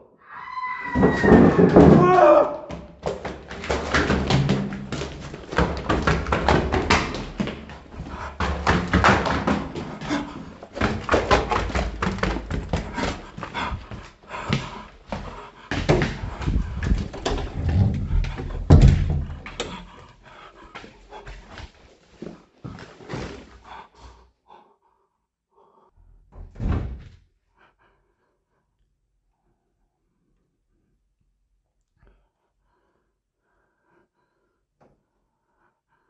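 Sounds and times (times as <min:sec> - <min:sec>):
footsteps going up stairs: 0:01.0 - 0:24.2
person breathing hard: 0:04.8 - 0:26.0, 0:27.5 - 0:28.8, 0:32.0 - 0:36.0
heavy thump: 0:15.9 - 0:19.6.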